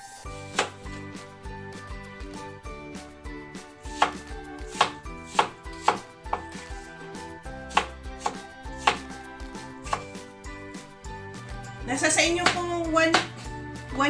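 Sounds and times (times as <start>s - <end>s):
knife chopping on wooden board: 0.5s - 1.0s, 3.9s - 6.7s, 7.7s - 9.1s, 9.9s - 10.2s, 12.4s - 13.5s.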